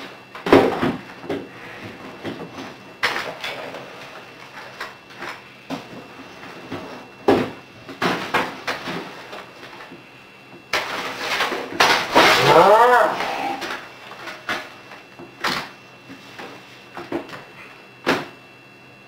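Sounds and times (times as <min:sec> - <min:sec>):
person yelling: 0:12.3 - 0:13.6.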